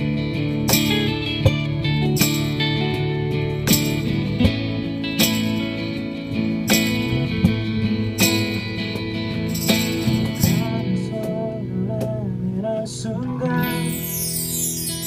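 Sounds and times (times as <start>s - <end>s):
acoustic guitar strumming: 0.0s - 15.0s
keyboard chords: 0.0s - 15.0s
cajon hits: 0.6s - 10.8s
person singing: 10.5s - 14.7s.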